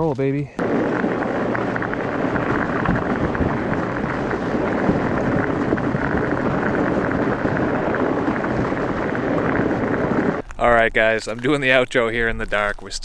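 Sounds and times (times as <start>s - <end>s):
bike tyres rolling on ice: 0.6s - 13.0s
studs clicking on ice: 10.4s - 13.0s.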